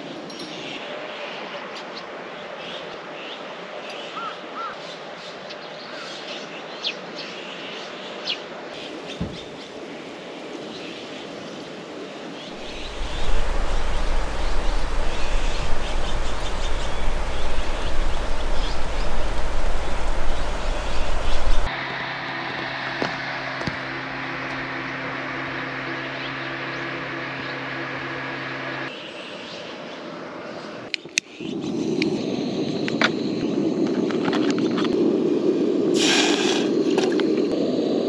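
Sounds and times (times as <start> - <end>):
birds chirping and calling: 12.4 - 21.7
heavy rain: 12.6 - 21.7.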